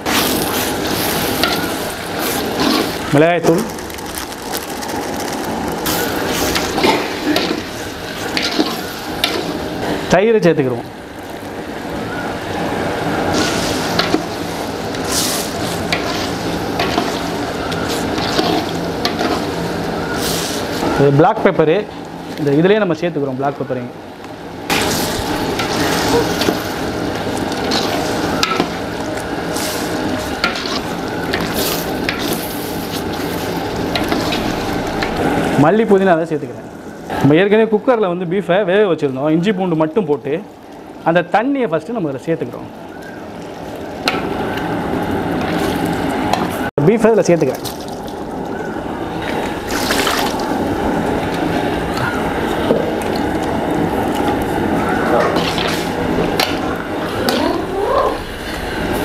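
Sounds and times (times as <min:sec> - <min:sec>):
ladle stirring and sloshing: 0:00.0 - 0:10.1, 0:13.1 - 0:21.0, 0:24.7 - 0:35.6, 0:42.9 - 0:48.5, 0:49.1 - 0:57.4
steady sizzling: 0:00.0 - 0:59.0
metal ladle scraping a pot: 0:00.1 - 0:03.1, 0:18.0 - 0:19.5
meat splashing into gravy: 0:49.6 - 0:50.5.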